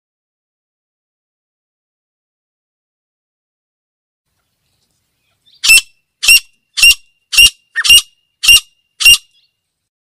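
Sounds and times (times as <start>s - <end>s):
francolin calling: 5.2s - 9.5s.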